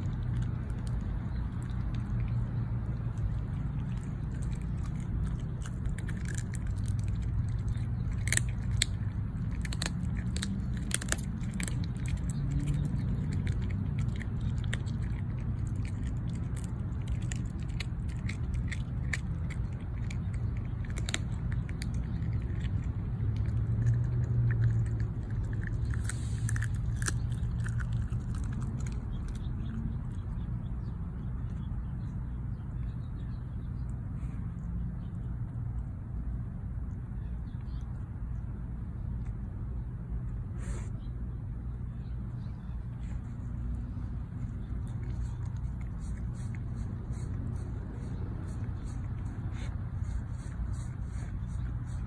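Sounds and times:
dog crunching bone: 0.0s - 32.4s, 43.1s - 52.0s
low hum: 0.0s - 52.0s.

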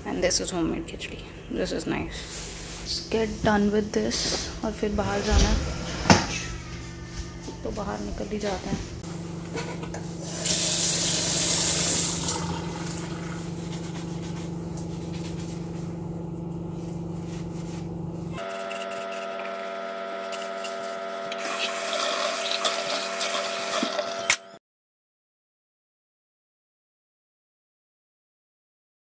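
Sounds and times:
steady hum: 0.0s - 21.6s
faucet water running into sink: 10.2s - 13.5s, 21.4s - 24.2s.

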